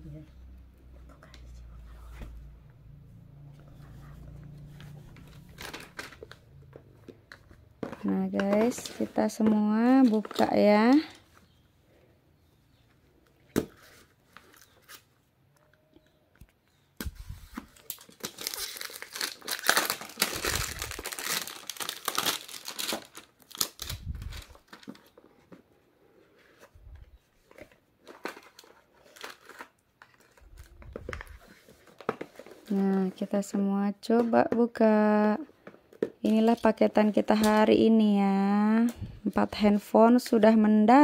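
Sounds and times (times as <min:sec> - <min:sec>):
plastic wrapping crinkling and tearing: 0:05.1 - 0:06.6, 0:17.6 - 0:25.2, 0:28.0 - 0:33.1.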